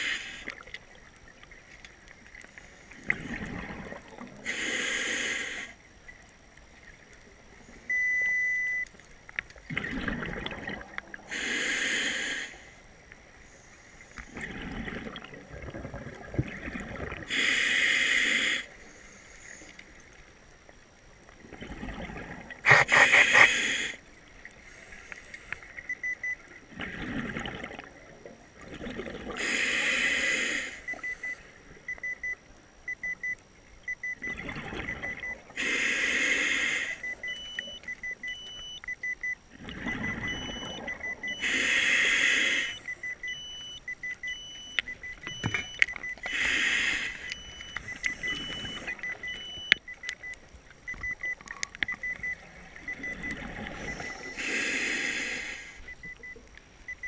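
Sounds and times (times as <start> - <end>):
regulator hissing inhale: 0.0 - 0.6, 4.4 - 5.8, 11.3 - 12.8, 17.3 - 19.8, 22.7 - 24.0, 24.6 - 25.7, 29.4 - 31.6, 35.6 - 37.1, 41.4 - 42.9, 46.2 - 47.4, 53.8 - 55.9
exhaled bubbles rushing: 3.1 - 4.2, 9.7 - 11.0, 14.3 - 17.3, 21.4 - 22.6, 26.7 - 29.4, 34.2 - 35.3, 52.7 - 54.0
slower higher beep: 7.9 - 8.9, 36.4 - 50.4, 51.0 - 57.0
rapid electronic beeping: 22.7 - 23.8, 32.0 - 57.0.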